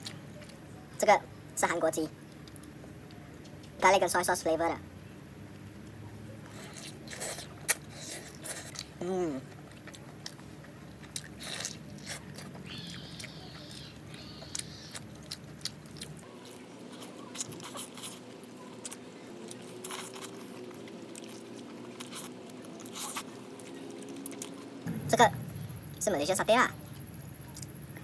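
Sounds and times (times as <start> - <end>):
person chewing fried chicken: 5.8 - 24.6.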